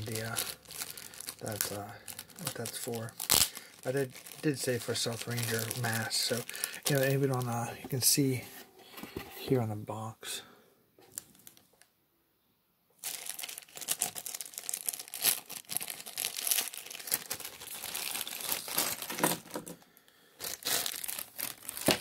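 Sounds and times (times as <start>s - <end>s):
plastic bag crinkling: 0.0s - 7.9s, 13.0s - 19.8s, 20.4s - 22.0s.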